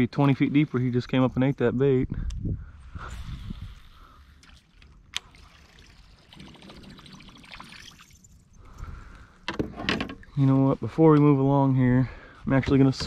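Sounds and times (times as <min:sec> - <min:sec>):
water trickling and lapping: 0:03.0 - 0:09.5.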